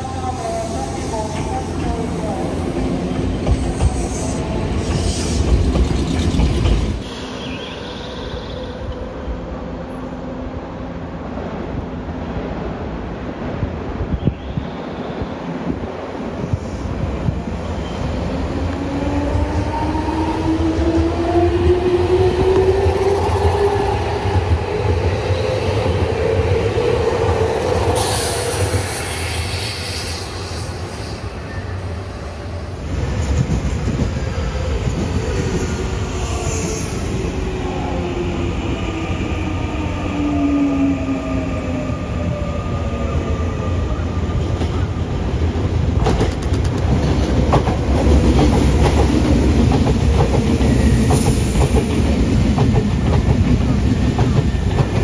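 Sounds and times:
wheels rumbling on rail: 0:43.2 - 0:55.0.

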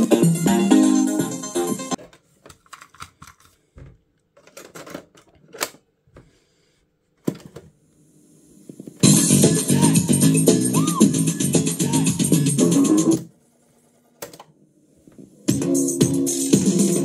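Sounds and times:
music from cassette: 0:00.0 - 0:02.0, 0:09.0 - 0:13.3, 0:15.4 - 0:17.0.

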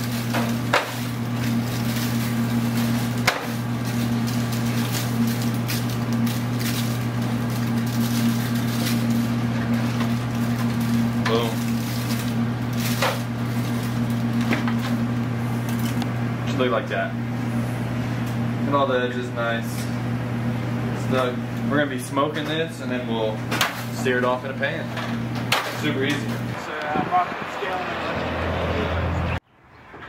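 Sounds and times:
aluminium foil pan crinkling: 0:00.0 - 0:16.0
low electrical hum: 0:00.0 - 0:29.4.

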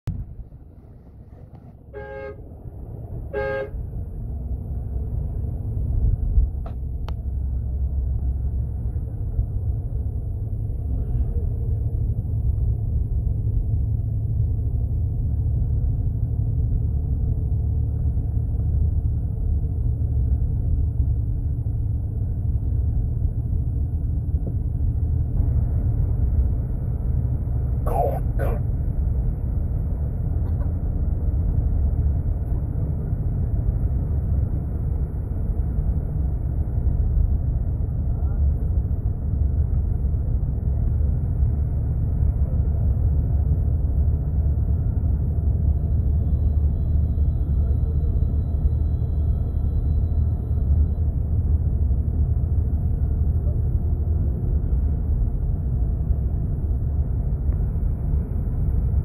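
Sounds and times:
vehicle rumble from on board: 0:00.0 - 0:59.0
vehicle horn toots: 0:01.9 - 0:02.5, 0:03.3 - 0:03.8.

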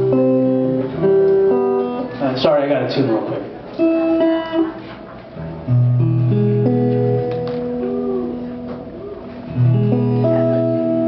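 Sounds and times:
acoustic guitar chords strummed: 0:00.0 - 0:02.2.

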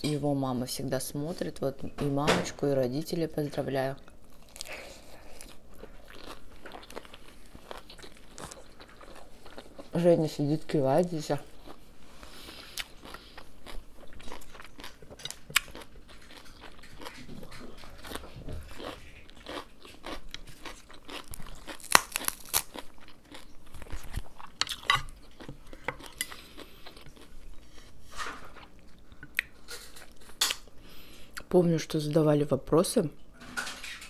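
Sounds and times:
person chewing crunchy food: 0:04.0 - 0:10.0, 0:11.4 - 0:31.5.

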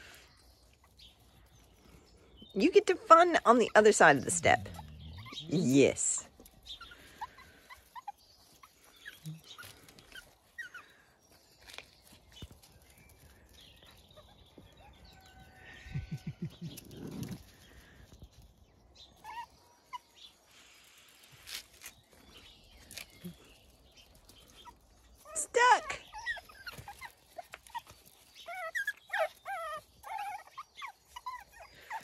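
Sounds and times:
puppies squeaking and whimpering: 0:00.0 - 0:12.0, 0:13.3 - 0:17.6, 0:19.0 - 0:32.0
drawn-out low animal call: 0:03.1 - 0:06.0.

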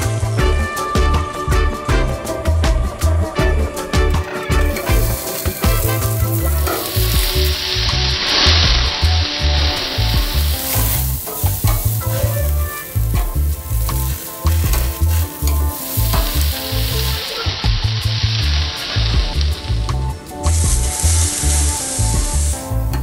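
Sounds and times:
background music bass line: 0:00.0 - 0:23.0
vegetables sizzling on a grill: 0:04.6 - 0:23.0.

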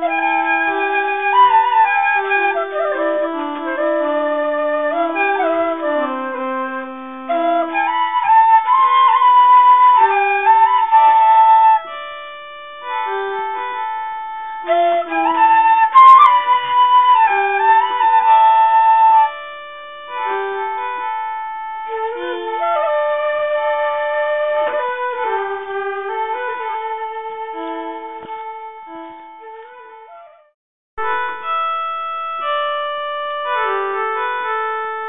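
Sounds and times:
slow instrumental music: 0:00.0 - 0:35.0.

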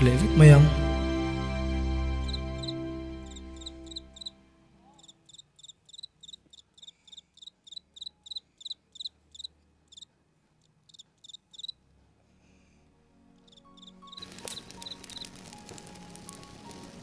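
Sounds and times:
faint cricket chirping: 0:02.3 - 0:10.1, 0:10.9 - 0:11.8, 0:13.4 - 0:15.3.

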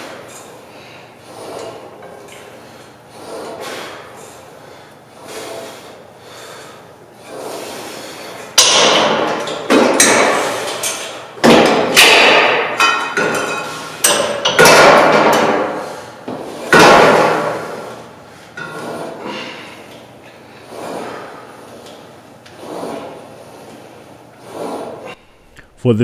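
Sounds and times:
metal weight plates clanging: 0:08.6 - 0:15.8.

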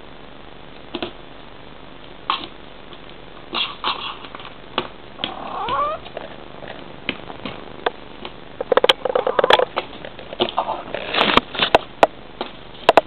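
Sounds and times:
cat call: 0:05.2 - 0:06.1.

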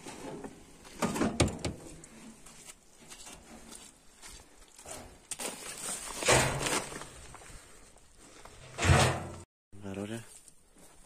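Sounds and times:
metal drum scraping and bumping: 0:08.6 - 0:09.5.

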